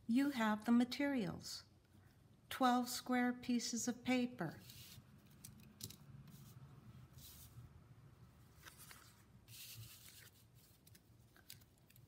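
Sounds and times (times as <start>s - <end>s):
paper sheets rustling: 8.5s - 12.0s.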